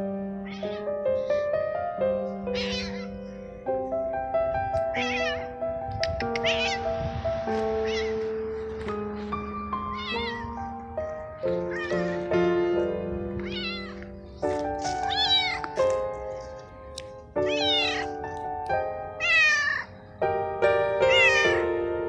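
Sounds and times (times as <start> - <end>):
background music sustained notes: 0.0 - 22.0
cat meowing: 0.4 - 1.5, 2.4 - 3.2, 4.9 - 6.9, 7.8 - 8.3, 9.9 - 10.8, 11.4 - 12.3, 13.4 - 15.8, 17.4 - 18.3, 19.2 - 20.0, 21.0 - 21.7.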